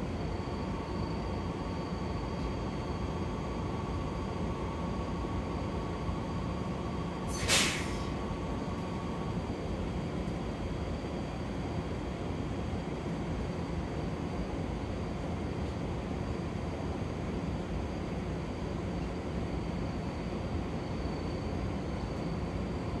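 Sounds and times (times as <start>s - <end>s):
train rumble: 0.0s - 3.3s
thin steady whine: 0.0s - 23.0s
air hiss: 7.3s - 8.2s.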